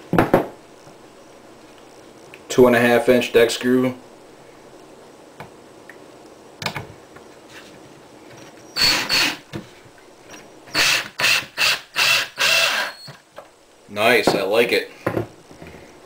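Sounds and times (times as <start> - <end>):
cordless drill motor whining: 8.8 - 9.4, 10.7 - 13.2.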